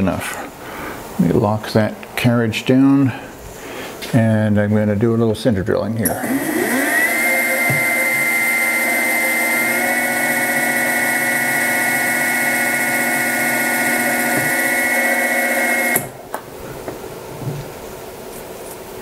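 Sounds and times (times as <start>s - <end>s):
mill spindle whining: 6.0s - 16.4s.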